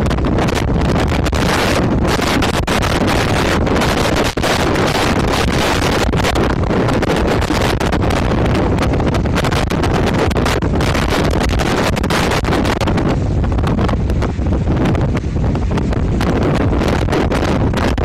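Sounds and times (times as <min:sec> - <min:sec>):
storm wind buffeting microphone: 0:00.0 - 0:18.0
surf breaking on rocks: 0:00.0 - 0:18.0.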